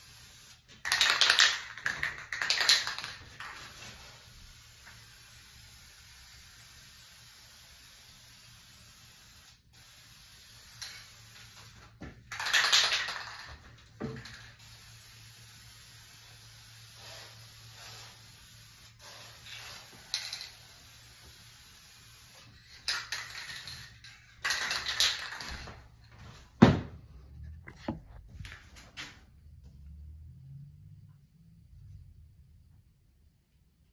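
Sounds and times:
aerosol can spraying: 0:00.0 - 0:13.4, 0:14.2 - 0:23.9.

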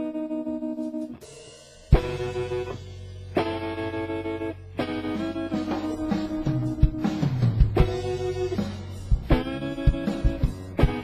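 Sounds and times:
guitar chords ringing: 0:00.0 - 0:11.0
low drum thumps: 0:05.7 - 0:11.0.

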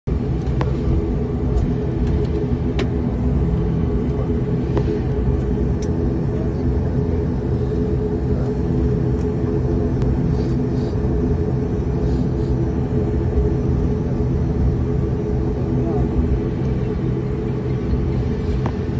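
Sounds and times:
propeller engine drone: 0:00.1 - 0:18.9.

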